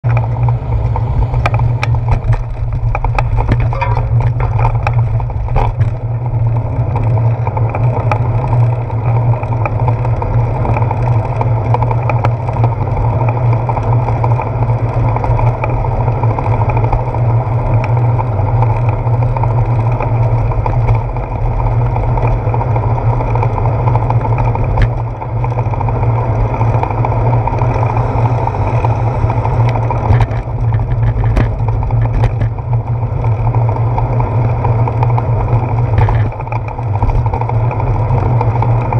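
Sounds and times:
wind on camera: 0.0s - 13.3s, 13.9s - 38.9s
bicycle tyres on wet pavement: 0.0s - 38.9s
clicks and knocks: 1.4s - 6.0s.

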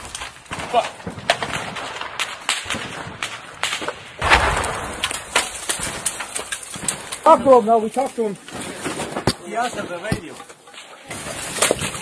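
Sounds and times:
gunshots: 0.0s - 7.5s
loud blast: 4.2s - 5.4s.

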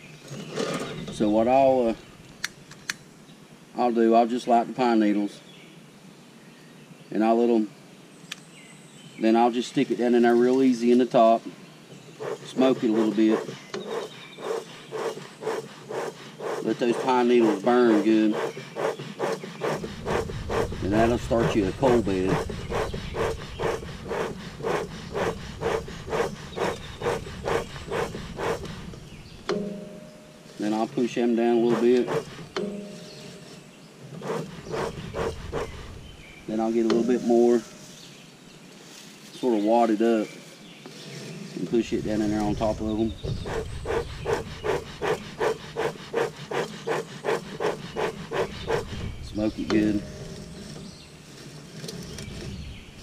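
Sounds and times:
bellows airy puffs: 12.1s - 38.1s, 40.3s - 51.0s.

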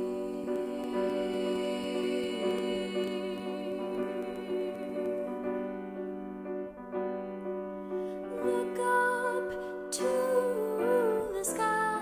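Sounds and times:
gentle piano instrumental music: 0.0s - 12.0s.

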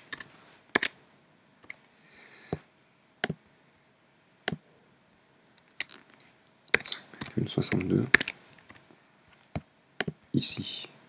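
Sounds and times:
mouse and keyboard clicks: 6.7s - 8.8s.

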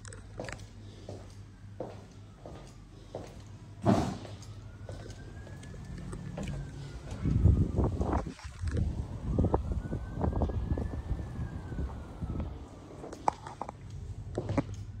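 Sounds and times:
distant siren wailing: 1.4s - 15.0s
low rumble: 5.3s - 15.0s.

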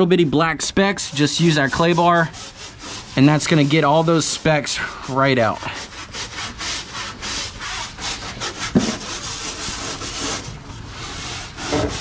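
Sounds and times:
clay bar scrubbing rasp: 0.0s - 12.0s.

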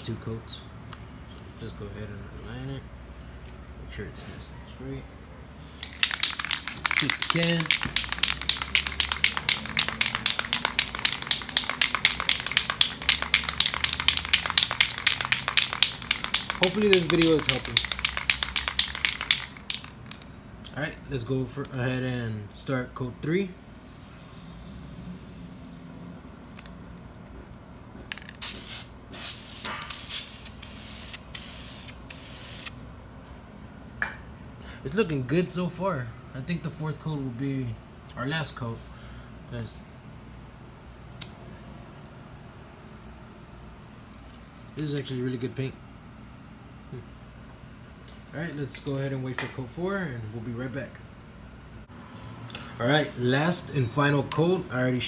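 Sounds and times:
spray can rattling: 5.8s - 20.3s, 28.1s - 32.7s.

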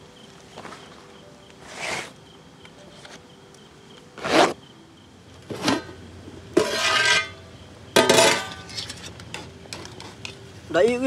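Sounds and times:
pot lid scraping and ringing: 5.5s - 6.0s, 6.6s - 7.4s, 8.0s - 10.2s.

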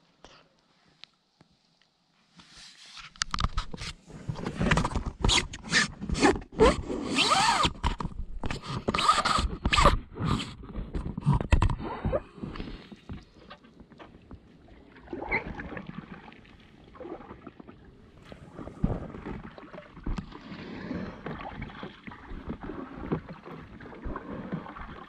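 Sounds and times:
camera handling scraping on vinyl: 2.4s - 6.4s
squeak: 8.6s - 10.5s.

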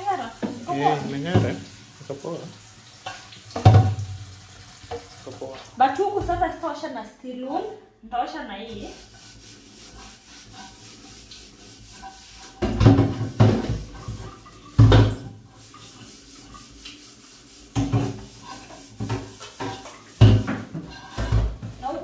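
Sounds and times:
sponge scrubbing a pan: 0.0s - 4.0s, 4.9s - 6.7s, 8.2s - 22.0s
pan knocking in a metal sink: 0.4s - 1.7s, 3.0s - 4.3s, 12.0s - 16.0s, 17.7s - 22.0s.

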